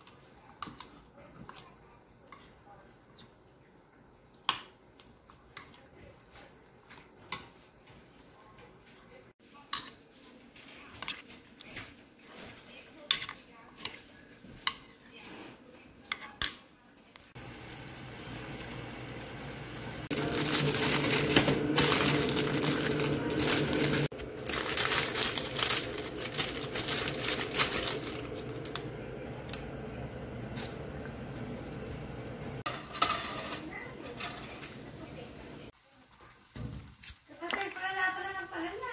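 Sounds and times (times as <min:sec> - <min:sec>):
plastic packets crinkling: 0:20.1 - 0:29.0.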